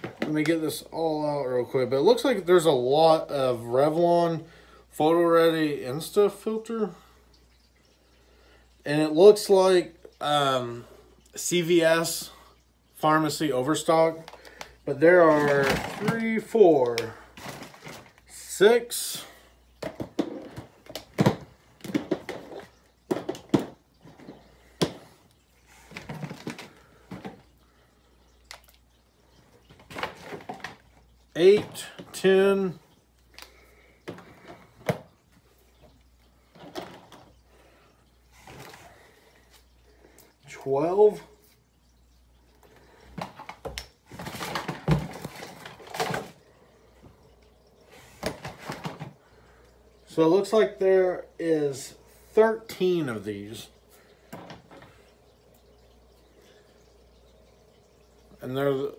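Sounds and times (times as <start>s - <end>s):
small bottles knocking together: 14.2s - 18.4s, 19.8s - 25.1s, 25.9s - 27.5s
packaging rustling: 15.3s - 18.3s.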